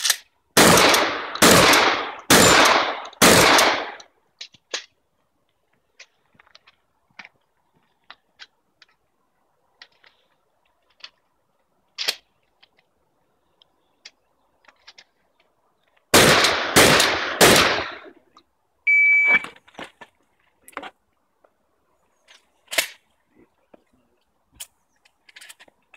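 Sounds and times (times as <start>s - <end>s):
shotgun shots: 0.6s - 4.0s, 16.1s - 18.1s
shot timer beep: 18.9s - 19.5s.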